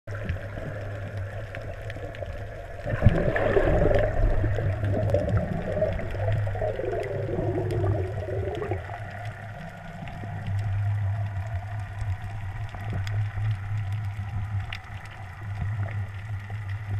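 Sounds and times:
underwater bubbling and gurgling: 0:00.1 - 0:16.9.

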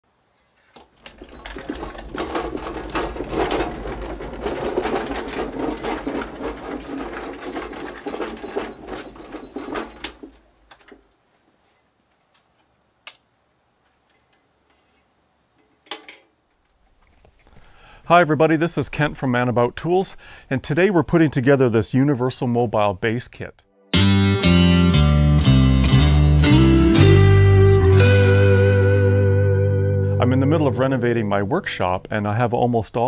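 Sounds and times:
rapid mechanical clattering: 0:00.8 - 0:11.0.

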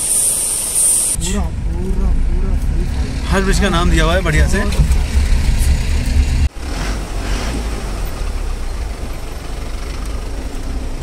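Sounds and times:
car engine and road rumble: 0:00.0 - 0:11.0.

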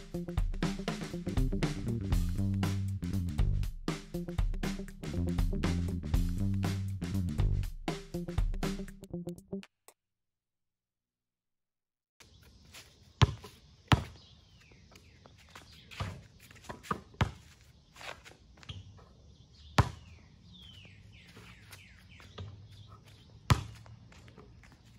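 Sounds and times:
birds chirping: 0:12.2 - 0:24.9
basketball bouncing on concrete: 0:13.2 - 0:14.2, 0:15.6 - 0:17.6, 0:19.7 - 0:20.9, 0:21.6 - 0:24.8.

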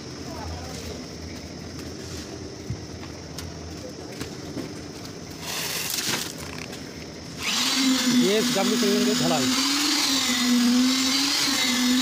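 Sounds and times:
concrete vibrator motor whining: 0:06.4 - 0:12.0.

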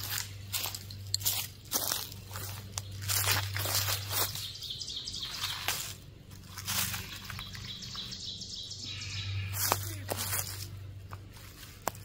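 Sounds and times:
dry leaves crunching: 0:00.0 - 0:12.0
faint high chirping: 0:07.0 - 0:09.9.

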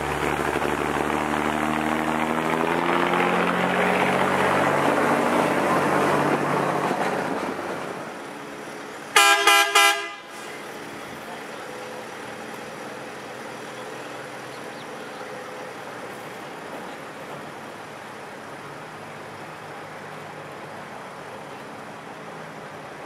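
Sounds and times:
rail car engine running: 0:00.0 - 0:23.0
rail car horn tooting: 0:09.1 - 0:10.4.

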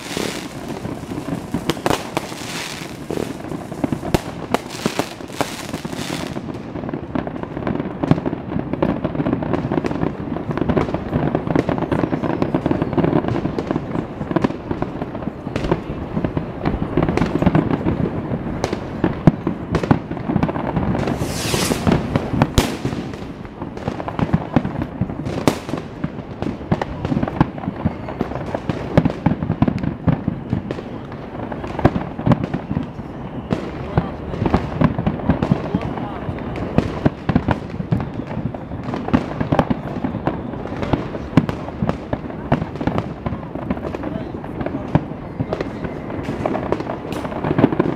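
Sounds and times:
firework hissing rush: 0:00.0 - 0:06.5, 0:21.0 - 0:23.4
crackling firework stars: 0:00.0 - 0:47.9
firework shell bursts: 0:21.0 - 0:23.1.

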